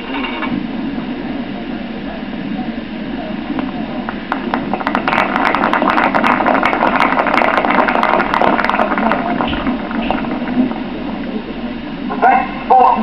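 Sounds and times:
audience applauding: 4.3 - 10.8.

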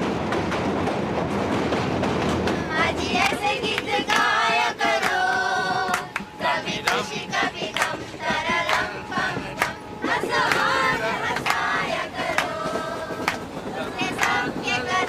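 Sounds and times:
women singing together: 2.6 - 15.0
hand clapping: 3.2 - 14.8.

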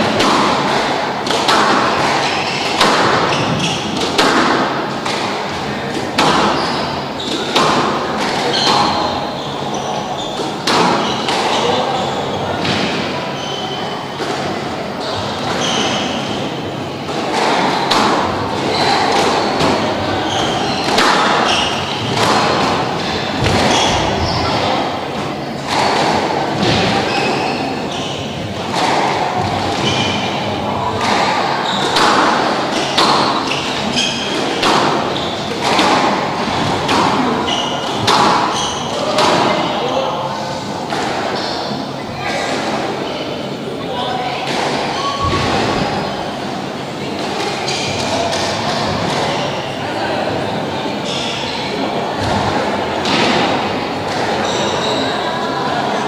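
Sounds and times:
squash ball struck by rackets: 0.0 - 9.3, 10.4 - 11.7, 17.1 - 27.4, 28.4 - 39.8
shoes squeaking on court floor: 0.0 - 46.7, 47.4 - 49.8, 51.0 - 52.4, 53.5 - 56.0.

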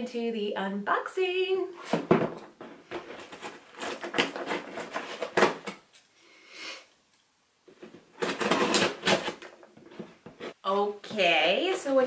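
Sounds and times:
cardboard box being opened: 2.9 - 5.7, 7.9 - 10.6.

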